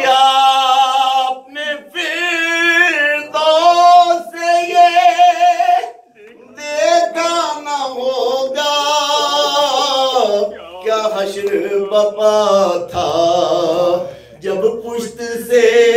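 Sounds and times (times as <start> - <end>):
man singing unaccompanied lament: 0.0 - 15.9.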